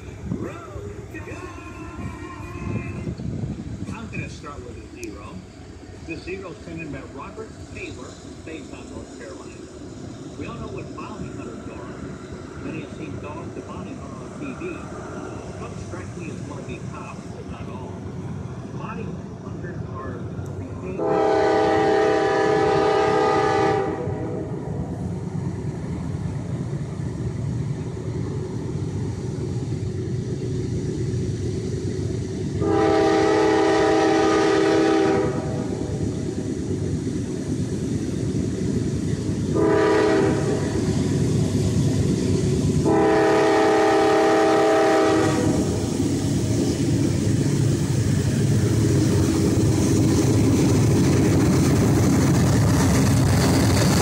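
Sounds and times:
train rumbling: 0.0s - 54.0s
locomotive air horn blasts: 21.0s - 24.5s, 32.6s - 35.7s, 39.6s - 40.7s, 42.8s - 45.6s.

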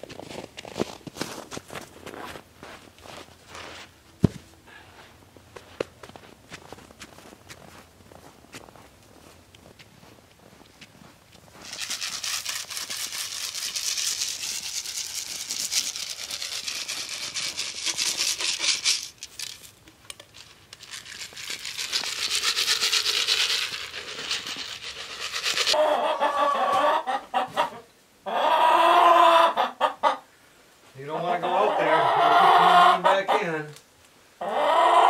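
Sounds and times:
ashes crackling onto snow: 10.9s - 25.8s
hens clucking: 24.8s - 30.3s, 31.1s - 33.7s, 34.4s - 35.0s.

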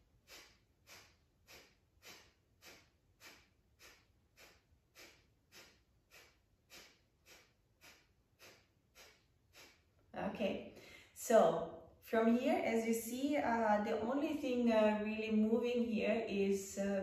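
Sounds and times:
sharp nasal exhales: 0.1s - 9.9s.

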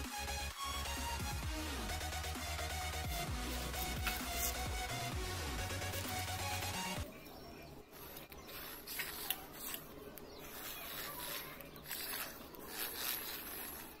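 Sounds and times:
plastic wheels scraping on concrete: 7.9s - 14.0s
small electric motor running: 10.4s - 14.0s.

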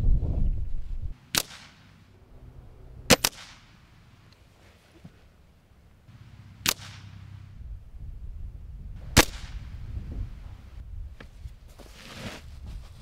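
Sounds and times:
air rifle shots: 1.1s - 2.0s, 3.1s - 4.1s, 6.1s - 7.5s, 9.1s - 9.8s.

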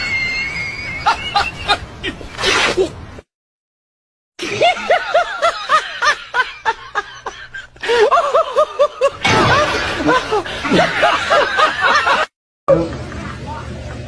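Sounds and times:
man laughing hard: 1.0s - 2.3s, 4.4s - 12.3s.

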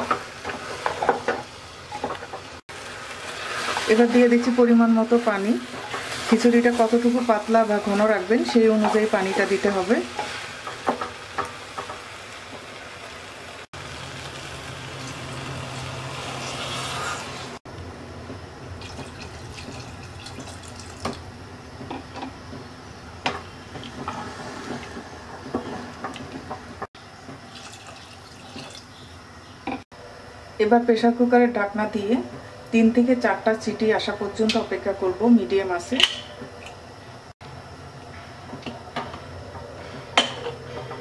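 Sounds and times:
water pouring into pot: 18.8s - 21.2s, 27.4s - 28.9s.

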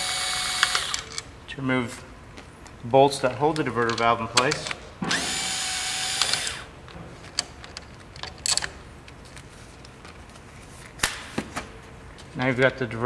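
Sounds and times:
power driver spinning: 5.1s - 6.7s.

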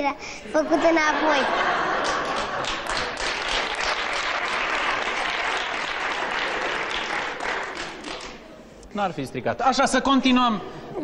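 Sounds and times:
audience applauding: 1.7s - 8.4s.

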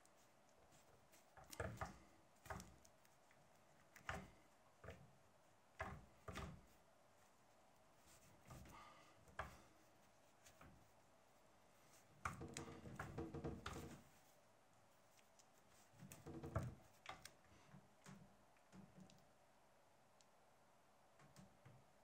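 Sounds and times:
small clicks and taps: 0.0s - 6.8s, 11.9s - 14.0s, 15.1s - 19.4s, 21.1s - 21.9s
leather rustling and rubbing: 9.6s - 12.3s.

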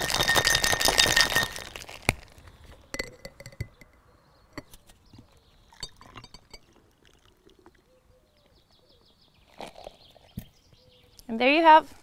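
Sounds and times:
ice rattling in cocktail shaker: 0.0s - 2.2s
metallic clinks and taps: 2.9s - 4.0s.

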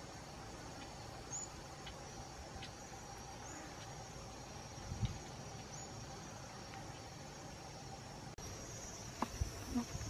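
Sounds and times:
insects trilling: 0.0s - 10.0s.

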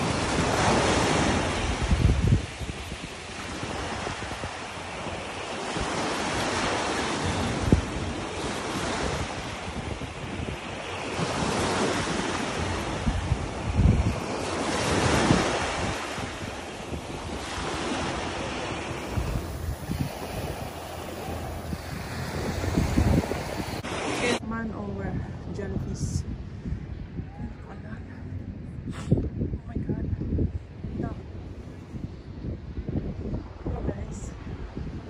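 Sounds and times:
small waves washing on a beach: 0.0s - 25.5s
wind rumbling on microphone: 0.0s - 35.0s.

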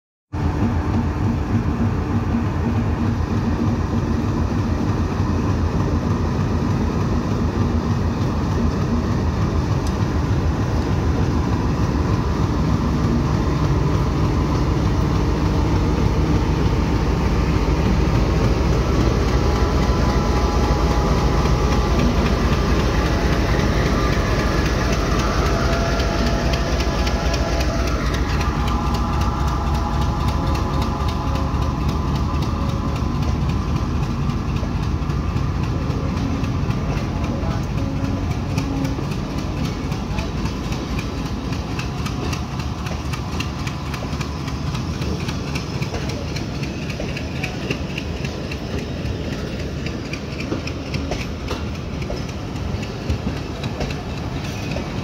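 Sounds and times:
locomotive engine droning: 0.4s - 55.0s
higher steady tones: 8.5s - 35.6s.

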